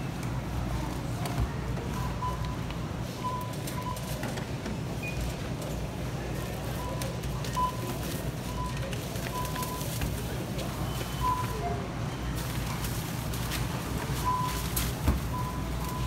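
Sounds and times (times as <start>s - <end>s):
store background hum: 0.0s - 16.0s
barcode scanner beeping: 1.9s - 4.2s, 6.7s - 10.1s, 10.7s - 11.8s, 14.2s - 16.0s.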